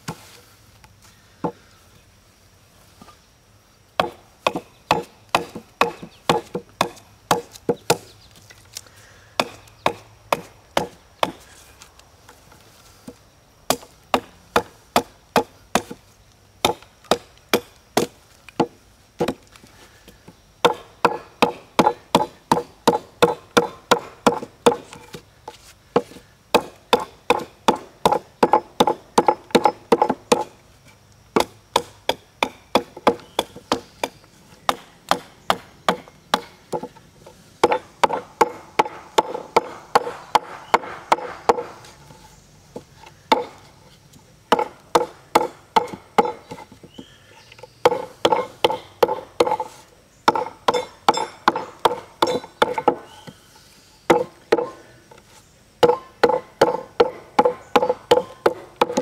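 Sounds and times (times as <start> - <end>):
hatchet chopping wood: 4.0 - 8.1, 9.4 - 11.4, 13.7 - 16.0, 16.6 - 19.4, 20.6 - 25.1, 26.0 - 30.6, 31.4 - 36.9, 37.6 - 41.8, 43.3 - 43.6, 44.5 - 46.6, 47.8 - 49.7, 50.3 - 53.4, 54.1 - 54.8, 55.8 - 59.0.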